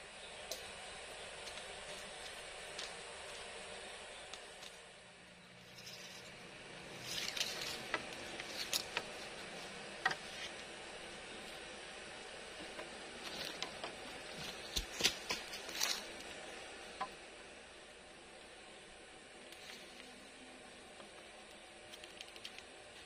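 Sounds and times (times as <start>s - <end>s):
steady background hiss: 0.0s - 23.0s
rustling: 7.0s - 10.7s.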